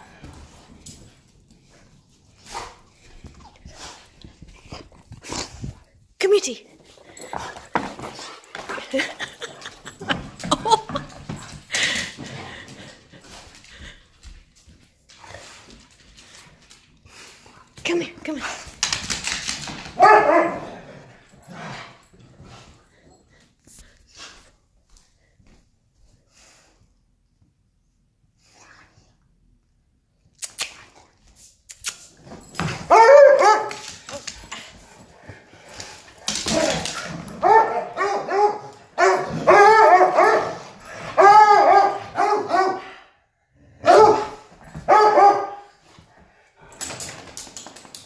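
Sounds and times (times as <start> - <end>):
dog scuffling and thumping: 6.8 - 13.5
dog barking: 20.0 - 20.7, 32.9 - 33.8, 37.4 - 40.6, 41.2 - 43.0, 43.8 - 45.7.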